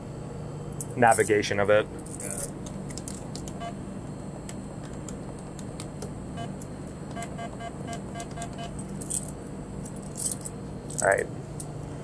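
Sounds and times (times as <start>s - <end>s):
steady low hum: 0.0s - 12.0s
keypad beeps: 3.5s - 3.8s, 6.4s - 8.8s.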